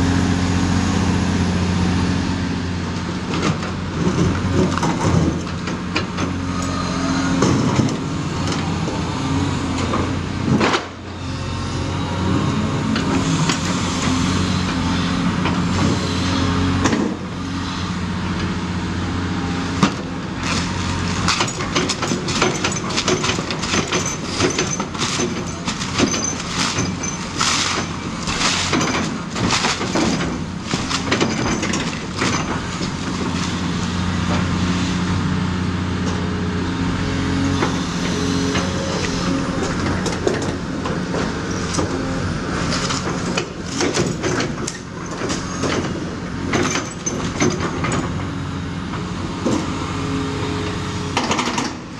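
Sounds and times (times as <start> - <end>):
excavator diesel engine: 0.0 - 51.9
falling masonry crashing: 20.6 - 34.3.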